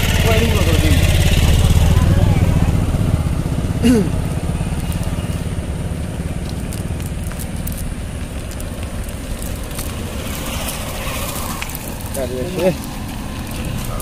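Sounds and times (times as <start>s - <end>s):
motor rumbling: 0.0s - 14.0s
net rustling on gravel: 6.2s - 14.0s.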